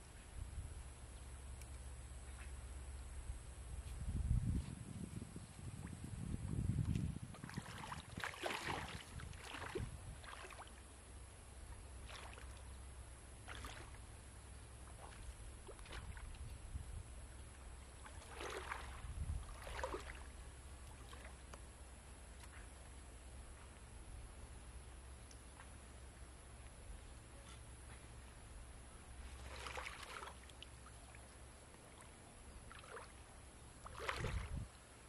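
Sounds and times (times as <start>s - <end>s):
legs wading through water: 6.8s - 10.9s, 11.6s - 16.6s, 17.3s - 21.7s, 29.2s - 34.7s.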